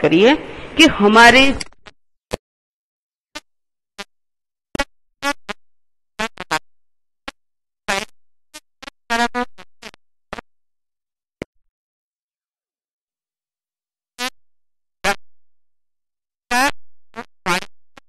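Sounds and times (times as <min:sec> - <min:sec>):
garbled electronic woman's voice: 0:00.0 - 0:01.6.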